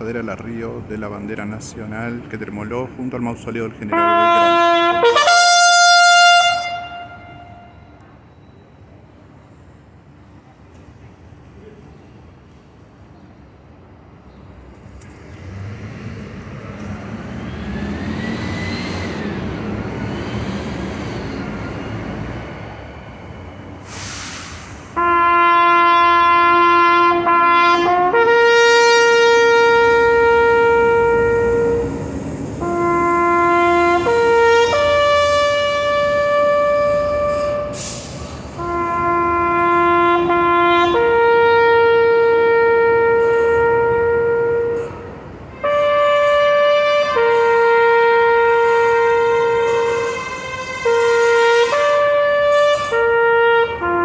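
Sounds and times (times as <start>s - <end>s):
bugle call in long notes: 3.9s - 7.8s, 25.0s - 31.9s, 32.6s - 37.8s, 38.6s - 54.0s.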